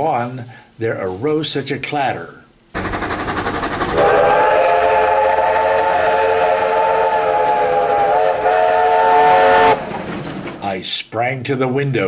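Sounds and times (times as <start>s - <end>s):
train hissing and chuffing: 2.8s - 11.0s
train whistle chord: 3.6s - 9.8s.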